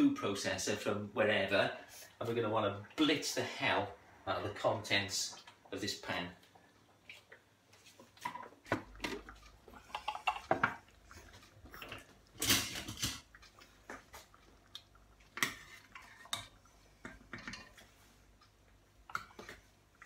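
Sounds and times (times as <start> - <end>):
kitchen clatter: 12.0 - 13.6, 15.3 - 18.0
spoon scraping in pot: 15.3 - 18.0.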